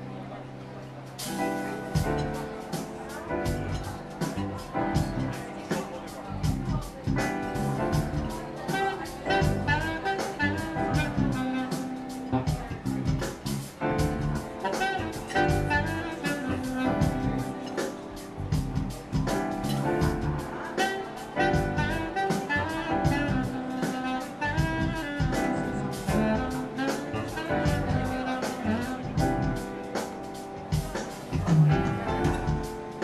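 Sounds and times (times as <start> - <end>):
keyboard: 0.0 - 33.0
saxophone melody: 0.0 - 33.0
steady beat: 1.2 - 33.0
electric bass: 3.4 - 5.4, 6.3 - 8.4, 9.4 - 11.4, 12.3 - 17.5, 18.4 - 20.4, 21.5 - 23.6, 24.5 - 29.6, 30.7 - 32.7.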